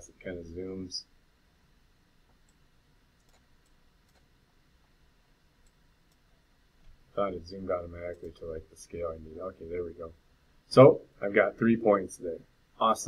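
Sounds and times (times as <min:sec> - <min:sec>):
faint computer mouse clicks: 0:03.2 - 0:04.3.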